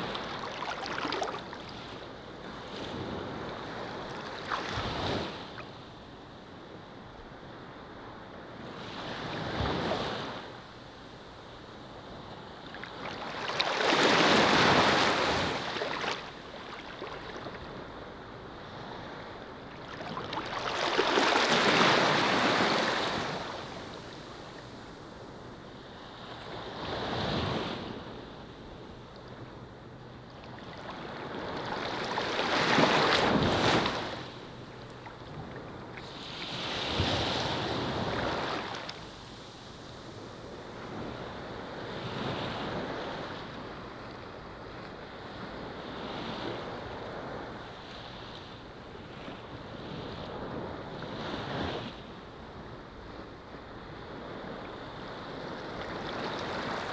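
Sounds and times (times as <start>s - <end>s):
ocean waves washing in: 12.9s - 28.7s.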